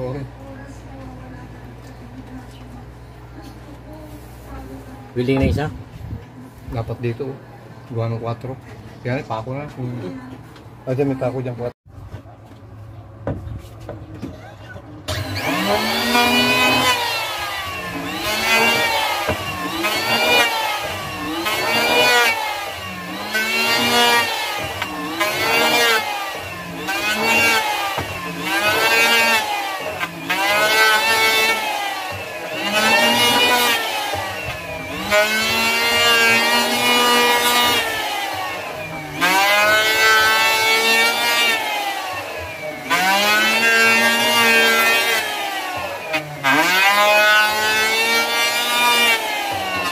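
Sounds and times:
electric planer cutting wood: 15.1 - 49.9.

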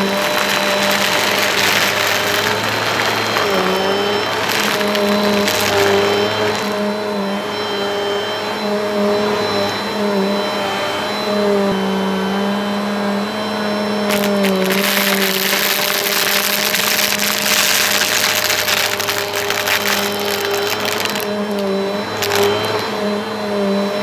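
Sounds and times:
plastic pieces rattling in vacuum: 0.0 - 6.9, 14.1 - 22.9
vacuum cleaner motor hum: 0.0 - 24.0.

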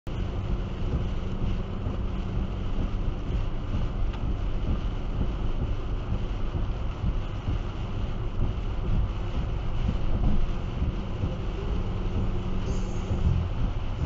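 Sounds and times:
car road and engine rumble: 0.0 - 14.0
tyres hissing on wet road: 0.1 - 14.0.

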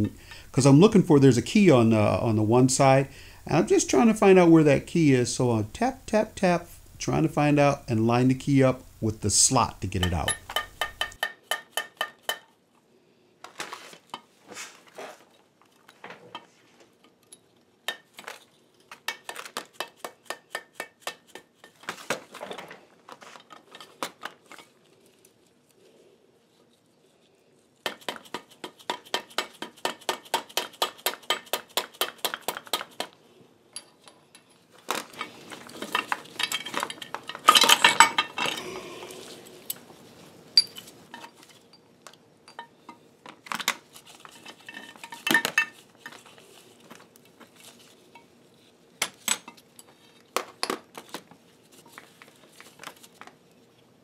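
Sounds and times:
clatter of metal parts: 21.6 - 24.8, 33.7 - 38.7, 42.5 - 47.9.

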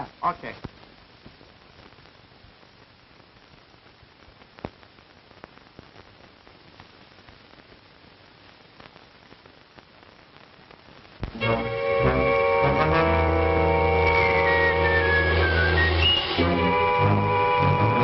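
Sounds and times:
old film soundtrack hiss: 0.0 - 18.0
clicks and crackles: 0.5 - 11.4.

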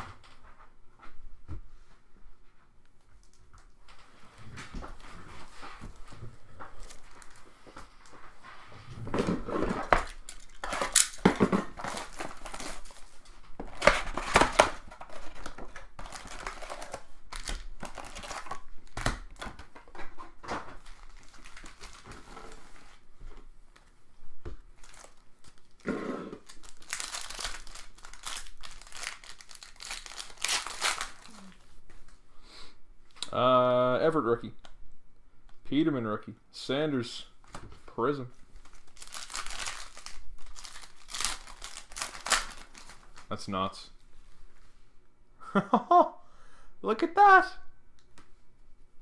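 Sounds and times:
packaging crinkling and tearing: 6.6 - 7.5, 9.2 - 20.0, 20.7 - 22.8, 24.8 - 31.6, 38.6 - 43.3.

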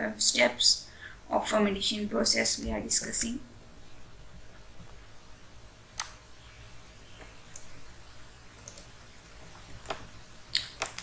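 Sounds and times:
faint low hum: 0.0 - 11.0
computer mouse clicks: 6.0 - 6.2, 8.6 - 8.9.

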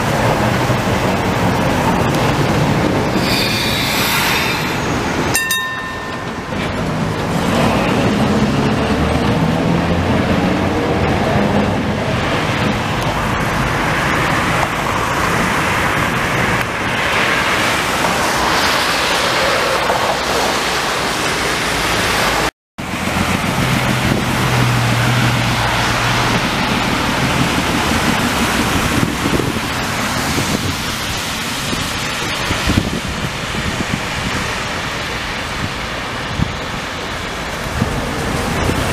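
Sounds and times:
tyres hissing on wet road: 0.0 - 5.4, 6.8 - 38.9
trams passing: 0.0 - 29.0
wind on microphone: 0.8 - 20.6, 23.3 - 34.6.

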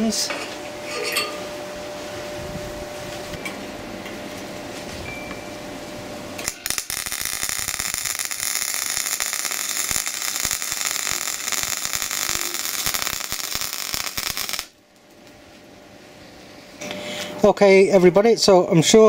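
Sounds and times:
welding arc crackling: 6.4 - 14.8.

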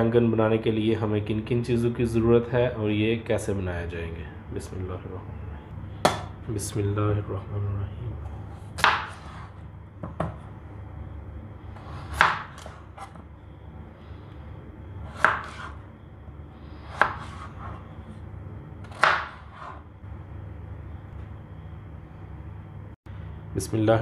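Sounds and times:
knife chopping on plastic board: 6.0 - 6.4, 8.8 - 10.4, 11.8 - 13.2, 15.1 - 15.8, 16.9 - 17.8, 18.8 - 19.8.

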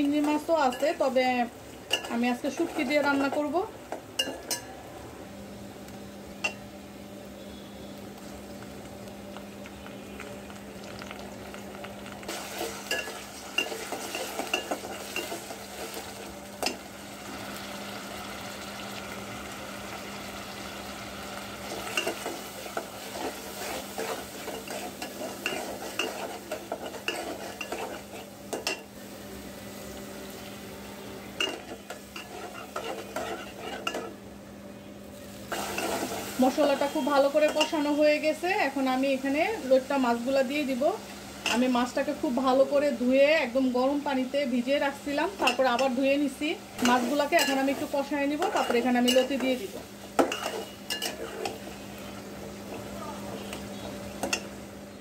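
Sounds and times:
onions sizzling in oil: 0.0 - 55.0
spoon scraping a pot: 21.9 - 28.8, 31.4 - 34.1, 50.2 - 52.3.

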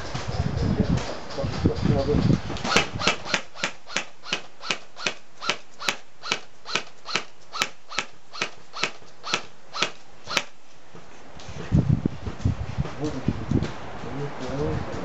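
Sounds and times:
airsoft rifle shots: 2.6 - 10.6.

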